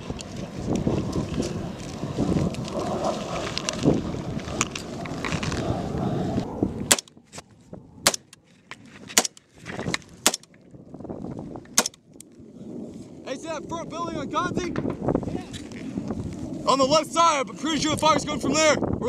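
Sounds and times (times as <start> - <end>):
rustling of movement: 0.0 - 13.3
wind buffeting: 0.0 - 19.0
rifle shots: 6.9 - 7.1, 8.0 - 8.4, 9.2 - 9.4, 10.2 - 10.5, 11.8 - 12.0.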